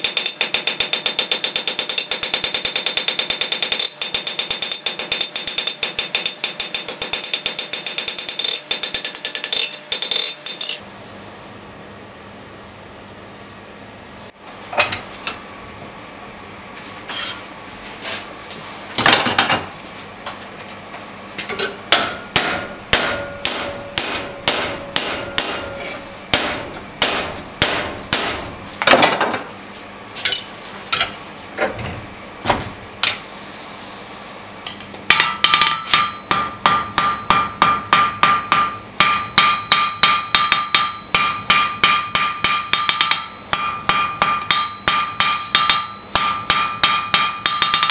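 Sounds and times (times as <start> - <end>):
hammer striking steel on anvil: 0.0 - 10.8, 21.9 - 28.5, 34.7 - 47.9.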